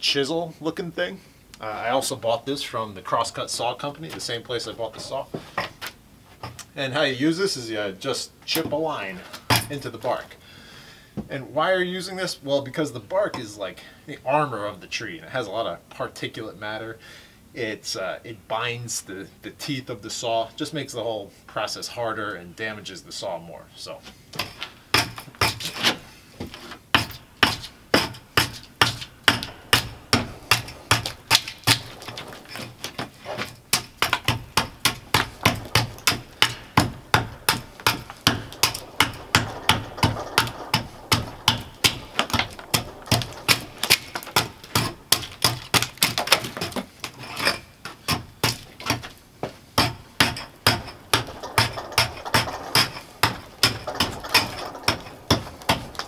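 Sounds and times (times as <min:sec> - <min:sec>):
bark spud chopping into bark: 0:41.5 - 0:46.8.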